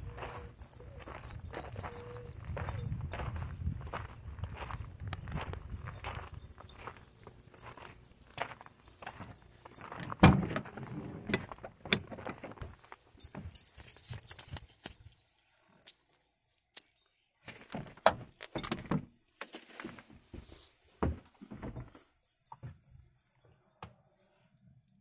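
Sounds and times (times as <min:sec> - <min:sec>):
keys jangling: 0:00.0 - 0:10.2, 0:13.2 - 0:15.3
van door clunk: 0:09.9 - 0:12.6
knocks and rattles inside van: 0:09.9 - 0:13.6.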